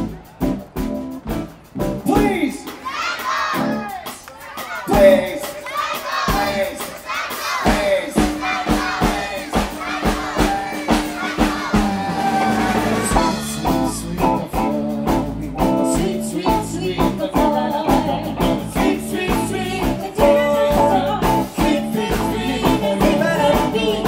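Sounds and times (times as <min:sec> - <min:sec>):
live band playing: 0:00.0 - 0:24.0
person singing: 0:10.2 - 0:24.0
electric guitar: 0:11.8 - 0:24.0.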